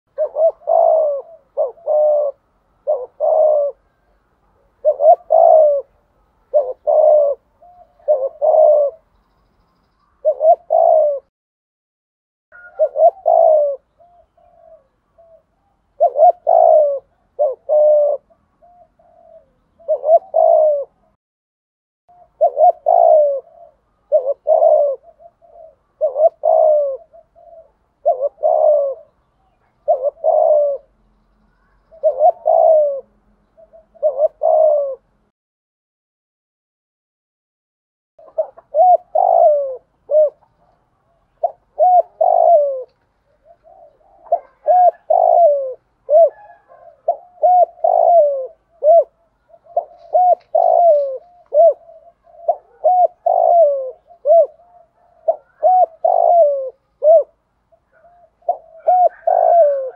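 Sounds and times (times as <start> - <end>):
dove cooing: 0.1 - 11.3, 12.6 - 21.2, 22.1 - 35.3, 38.2 - 59.9.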